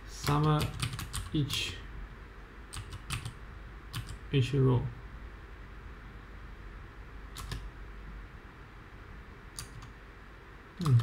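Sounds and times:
low steady hiss: 0:00.0 - 0:11.0
keyboard keystrokes: 0:00.2 - 0:01.3, 0:02.7 - 0:04.2, 0:07.4 - 0:07.7, 0:09.6 - 0:09.9.

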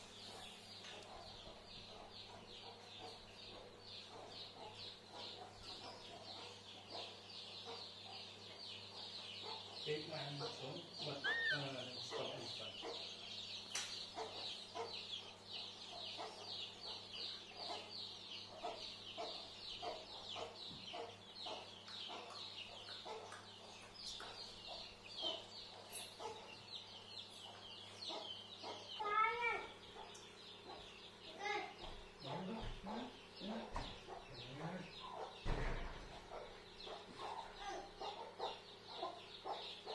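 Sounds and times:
small birds chirping: 0:00.0 - 0:39.9
loud arching bird call: 0:11.2 - 0:11.9.

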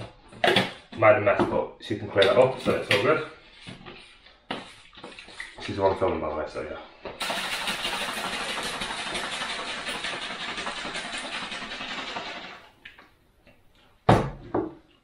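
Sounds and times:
tap water running into bottle: 0:07.2 - 0:13.0.

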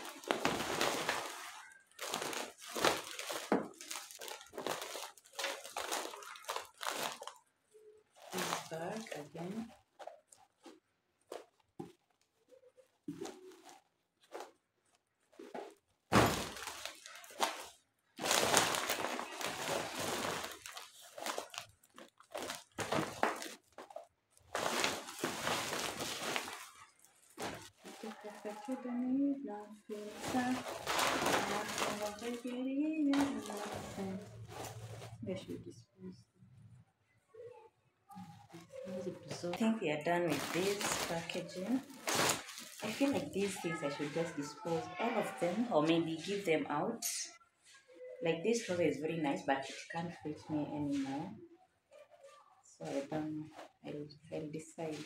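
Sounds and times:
packaging crinkling: 0:00.0 - 0:29.1, 0:29.8 - 0:35.2, 0:38.4 - 0:44.1.

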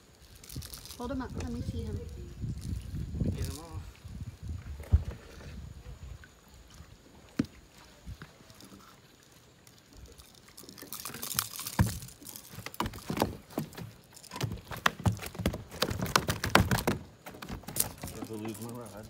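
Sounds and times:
fish flopping on boat deck: 0:10.5 - 0:19.0.

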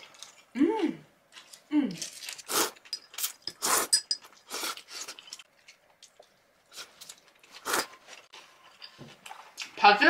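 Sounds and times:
utensils on a dish: 0:01.4 - 0:05.5
chewing: 0:04.6 - 0:09.8.

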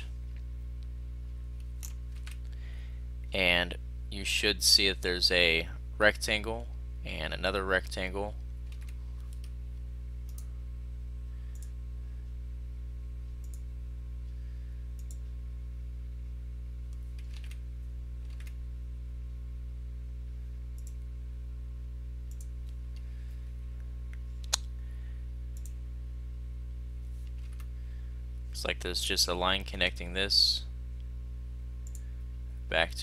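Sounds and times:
low electrical hum: 0:00.0 - 0:33.0
computer mouse clicking: 0:10.3 - 0:10.5, 0:13.4 - 0:13.6, 0:15.0 - 0:15.3, 0:16.9 - 0:17.6, 0:20.8 - 0:21.0, 0:22.3 - 0:23.0, 0:25.6 - 0:25.8, 0:31.8 - 0:32.1.

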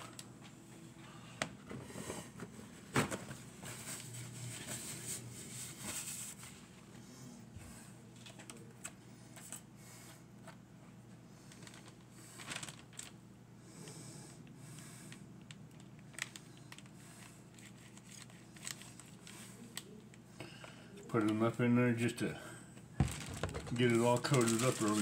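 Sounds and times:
plastic zipper bag rustling: 0:11.6 - 0:13.2, 0:23.0 - 0:25.0.

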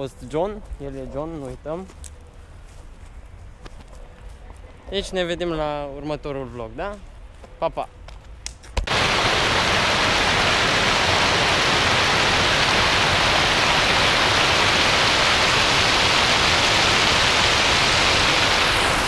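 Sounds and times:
water rushing over a weir: 0:08.9 - 0:19.0.

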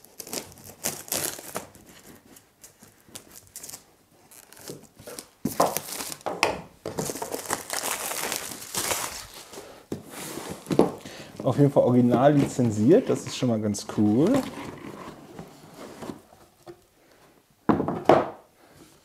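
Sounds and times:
plastic wrap crinkling and tearing: 0:00.0 - 0:06.2, 0:06.9 - 0:15.2.

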